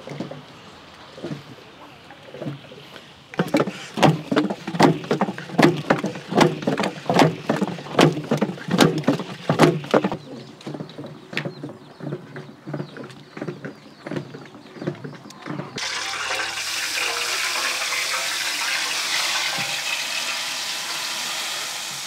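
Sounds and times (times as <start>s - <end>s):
wooden paddle scraping a pot: 3.4s - 12.9s.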